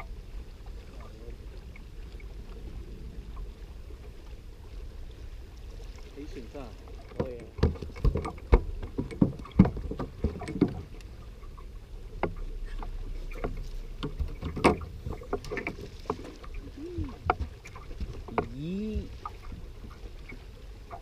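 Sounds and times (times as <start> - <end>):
knocks and thumps on boat deck: 6.9 - 11.0, 12.2 - 16.4, 17.1 - 19.5.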